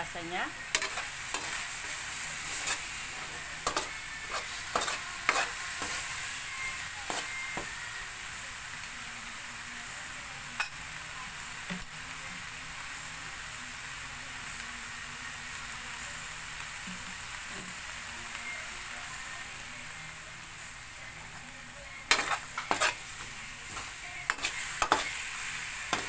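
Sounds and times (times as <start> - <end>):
meat sizzling in a wok: 0.0 - 26.0
spatula scraping and clicking on pan: 0.7 - 1.6, 3.6 - 6.0, 22.1 - 25.2.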